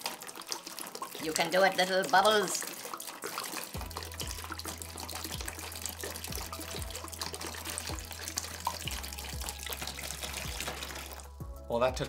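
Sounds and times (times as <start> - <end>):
air bubbling in bottle: 0.0 - 11.4
water trickling into plastic tub: 0.0 - 11.4.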